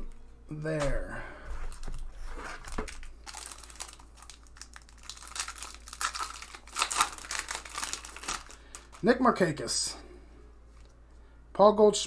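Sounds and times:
foil wrapper crinkling and tearing: 1.7s - 9.3s.

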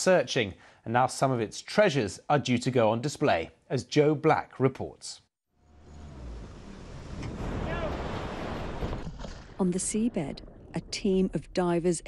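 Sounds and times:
open sea rushing noise: 6.9s - 10.8s.

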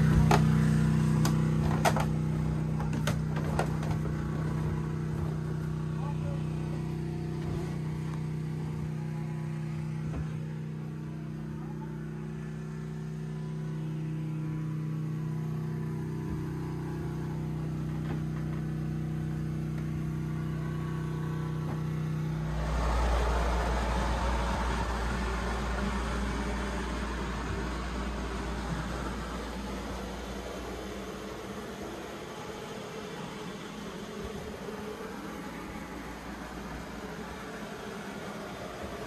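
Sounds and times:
diesel engine humming: 0.0s - 39.0s
rushing noise with deep rumble: 21.7s - 32.7s.

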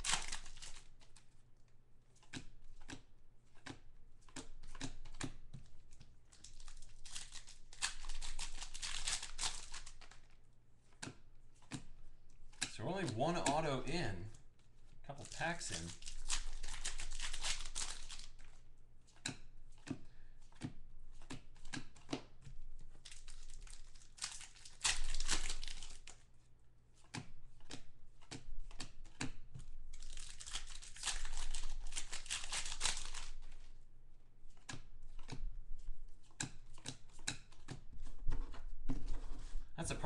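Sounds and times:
foil wrappers tearing and crinkling: 0.0s - 1.2s, 6.3s - 10.3s, 15.1s - 18.5s, 23.0s - 26.1s, 29.9s - 33.7s
cards clicking and snapping: 0.0s - 1.4s, 2.1s - 14.3s, 15.1s - 26.3s, 27.0s - 33.7s, 34.5s - 39.0s.

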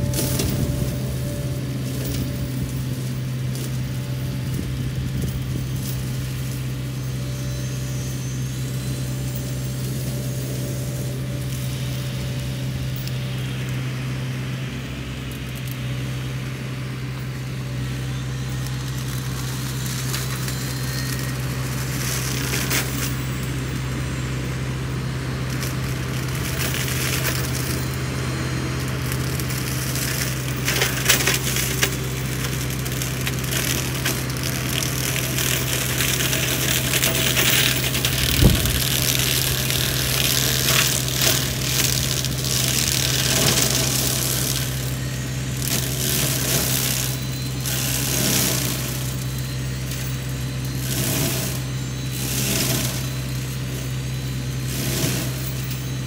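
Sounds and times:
wood crackling and splintering: 0.0s - 14.2s, 17.2s - 56.0s
diesel engine droning: 0.0s - 56.0s
flail mulcher running: 0.0s - 56.0s.

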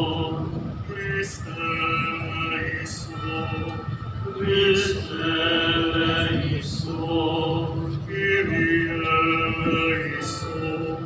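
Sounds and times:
voices singing a hymn: 0.0s - 11.0s.

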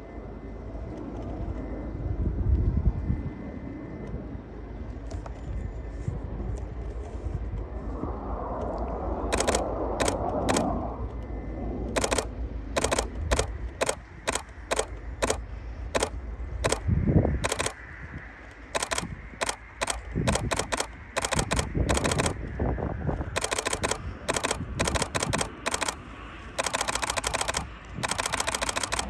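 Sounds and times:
low rumble: 4.2s - 29.0s
camera shutter clicks: 9.3s - 10.7s, 11.9s - 16.8s, 17.4s - 17.8s, 18.7s - 22.4s, 23.3s - 29.0s.

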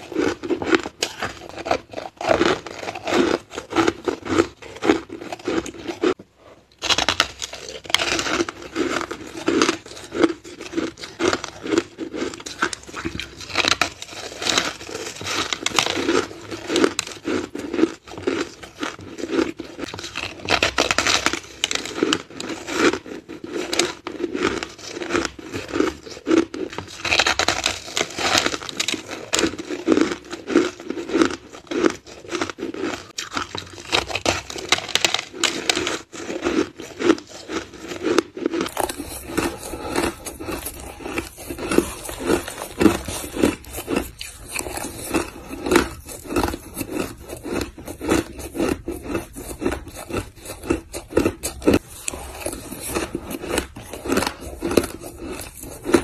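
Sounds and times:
crunching shaved ice: 0.0s - 6.2s, 6.8s - 56.0s
chewing hard ice crunches: 0.0s - 56.0s.

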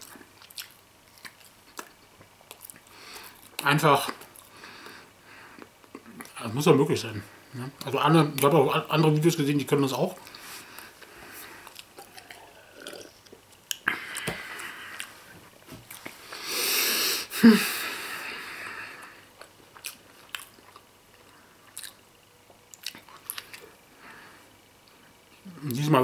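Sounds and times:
man chewing: 0.0s - 6.4s, 10.2s - 23.8s.

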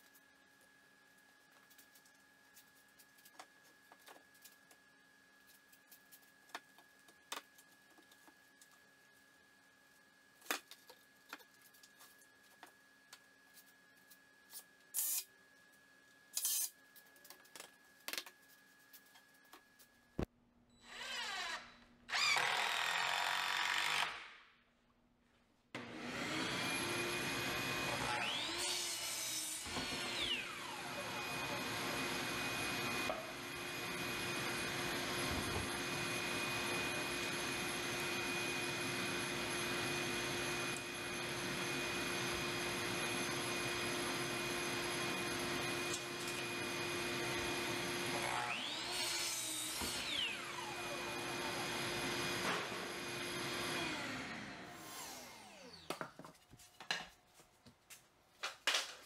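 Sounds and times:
power tool motor running: 20.8s - 24.3s, 25.8s - 55.9s.

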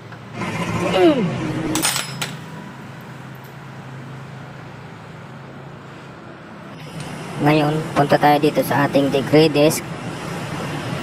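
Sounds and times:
sharp metal clinks: 1.7s - 2.4s.

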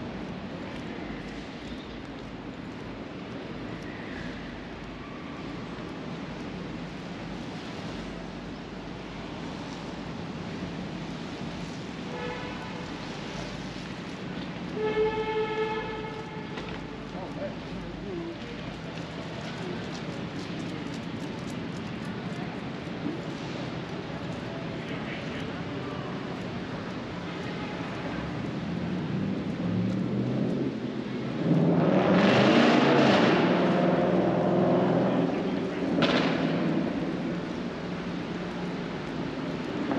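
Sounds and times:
traffic rumble on wet street: 0.0s - 39.9s
faint horn: 12.1s - 13.1s, 14.7s - 17.0s.

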